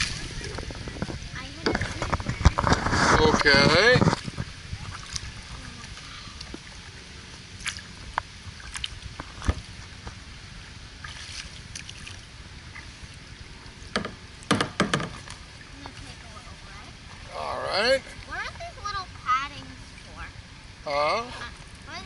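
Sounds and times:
steady low rumble: 0:00.0 - 0:14.5, 0:15.2 - 0:22.0
paddle splashing in water: 0:00.0 - 0:20.2
sharp knocks: 0:13.9 - 0:15.3.

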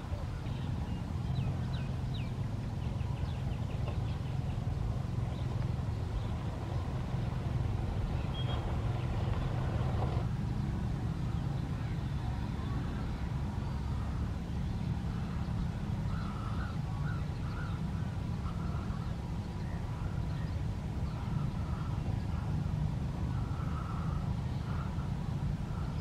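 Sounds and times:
low motor rumble: 0:00.0 - 0:26.0
faint high bird chirps: 0:08.2 - 0:09.4.

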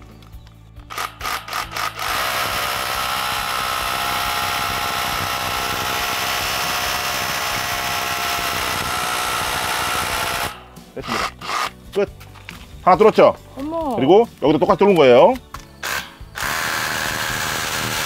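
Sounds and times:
hammer drill boring into concrete: 0:00.9 - 0:11.8, 0:15.8 - 0:18.0.

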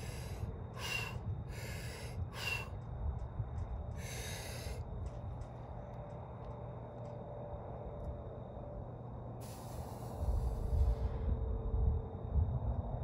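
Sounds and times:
man breathing sharply: 0:00.0 - 0:02.8, 0:04.0 - 0:04.8
steady low rumble: 0:00.0 - 0:13.0.

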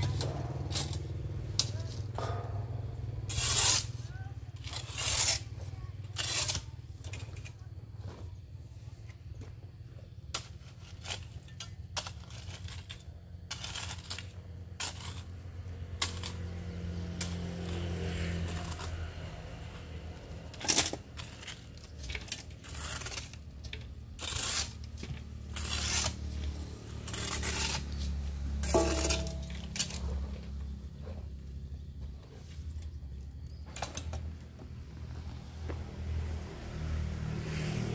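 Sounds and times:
shovel scraping soil on concrete: 0:00.0 - 0:37.9
shovel clanking on metal basin: 0:28.6 - 0:30.5.

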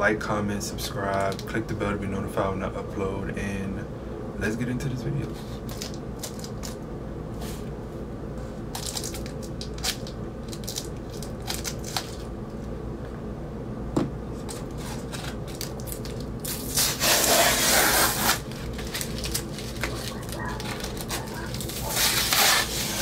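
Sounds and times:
scissors cutting cardboard: 0:16.5 - 0:19.0, 0:19.8 - 0:23.0.

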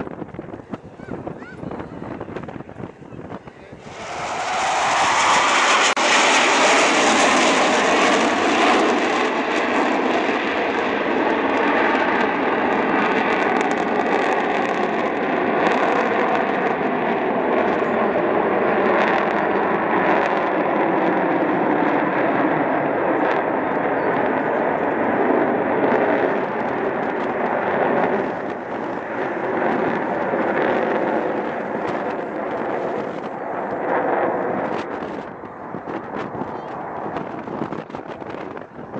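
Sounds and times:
jet roar: 0:00.0 - 0:38.9
faint whine falling in pitch: 0:00.6 - 0:08.4.

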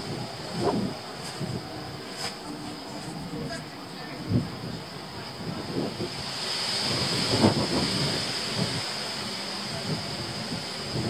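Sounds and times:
steady high-pitched hiss: 0:00.0 - 0:11.0
wind buffeting microphone: 0:00.0 - 0:11.0.

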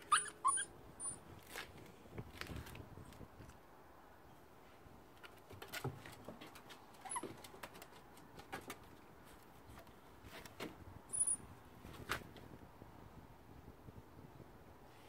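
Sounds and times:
puppy squeaks: 0:00.0 - 0:01.2, 0:07.0 - 0:07.5, 0:11.1 - 0:11.4
puppy claws tapping on wooden steps: 0:05.2 - 0:09.1.

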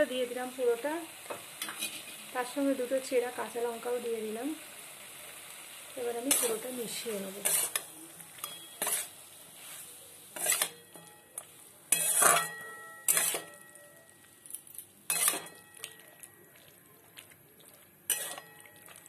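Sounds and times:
spatula scraping metal pan: 0:01.6 - 0:02.2, 0:07.4 - 0:09.2, 0:10.4 - 0:10.9, 0:11.9 - 0:13.6, 0:15.1 - 0:15.6, 0:18.1 - 0:18.5.

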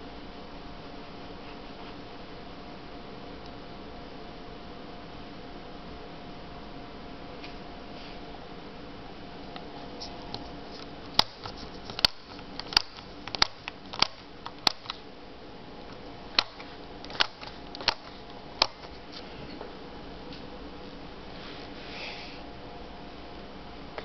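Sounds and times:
pushbutton switches clicking: 0:11.1 - 0:15.0, 0:16.3 - 0:19.0
steady hiss: 0:21.2 - 0:22.6.

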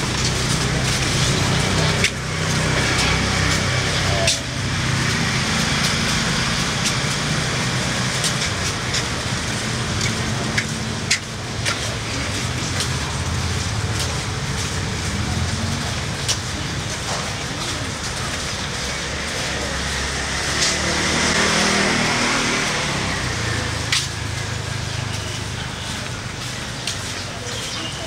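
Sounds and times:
road noise: 0:00.0 - 0:28.0
vehicle engines running: 0:00.0 - 0:28.0.

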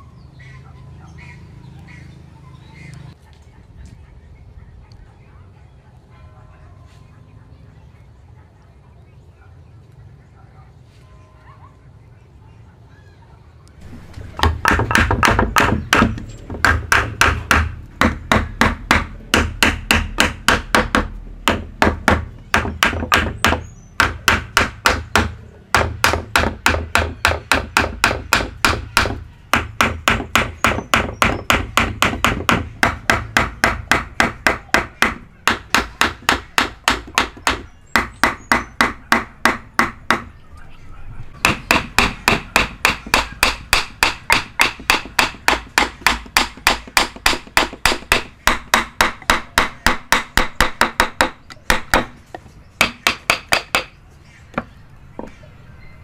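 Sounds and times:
hammer striking chisel into wood: 0:14.4 - 0:40.3, 0:41.4 - 0:54.0.

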